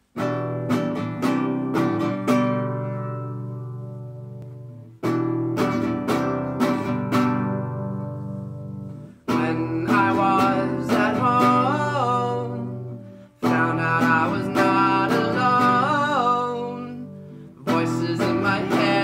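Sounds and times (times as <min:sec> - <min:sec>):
classical guitar strumming: 0:00.0 - 0:19.0
man singing: 0:09.3 - 0:19.0.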